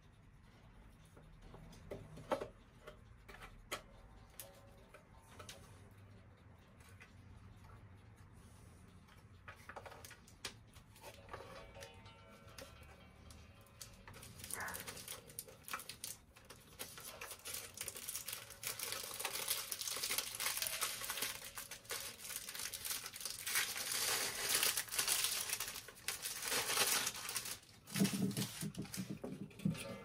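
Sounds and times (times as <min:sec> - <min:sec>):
packing paper crinkling and tearing: 0:14.2 - 0:29.0.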